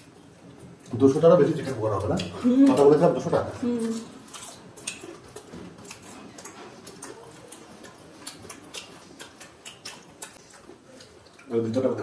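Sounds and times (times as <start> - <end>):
wet chewing clicks and smacks: 0.0 - 12.0.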